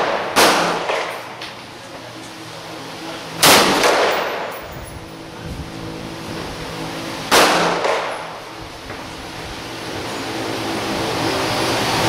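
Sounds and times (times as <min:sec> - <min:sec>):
rifle shots with echo: 0:00.0 - 0:01.2, 0:03.4 - 0:04.5, 0:07.3 - 0:08.3.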